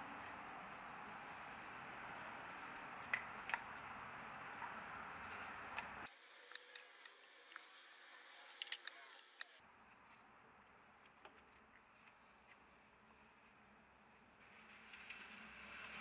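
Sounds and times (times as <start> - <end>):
steady hiss: 6.0 - 9.6.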